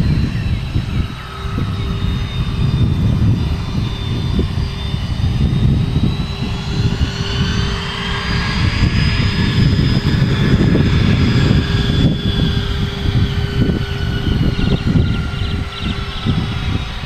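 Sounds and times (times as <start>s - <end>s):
jet engines whining: 0.0s - 17.0s.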